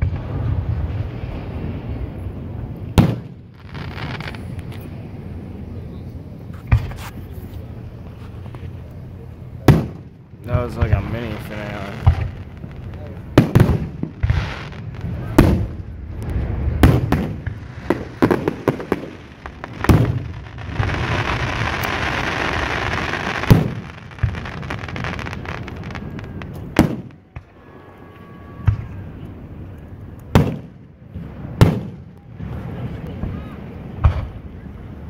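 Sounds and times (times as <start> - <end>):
fireworks shells bursting with booms: 0.0 - 4.9, 9.5 - 27.5, 30.3 - 32.8
fireworks hiss: 3.0 - 4.9, 10.6 - 27.1.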